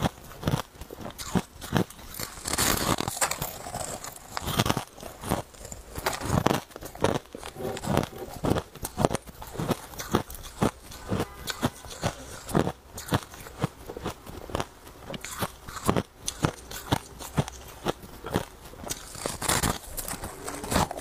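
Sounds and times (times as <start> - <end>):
person crunching ice: 0.0 - 21.0.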